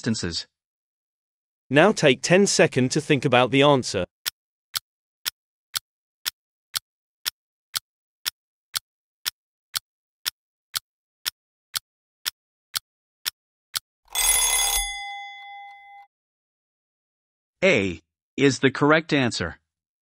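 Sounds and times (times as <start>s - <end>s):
clock ticking: 5.2s - 14.4s.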